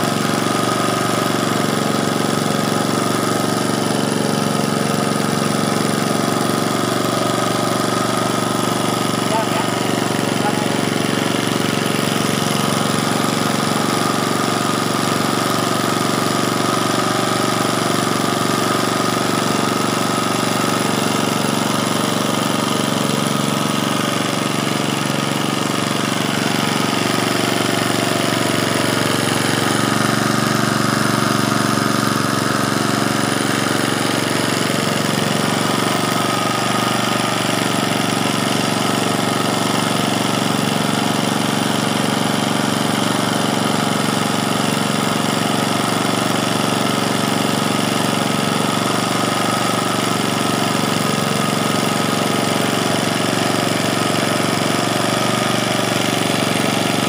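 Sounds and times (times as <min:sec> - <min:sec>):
small engine running steadily: 0:00.0 - 0:57.0.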